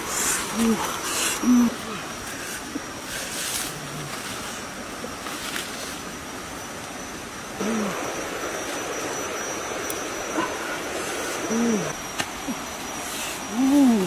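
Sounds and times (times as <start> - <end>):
steady outdoor hiss: 0.0 - 14.0
low animal calls: 10.3 - 12.0.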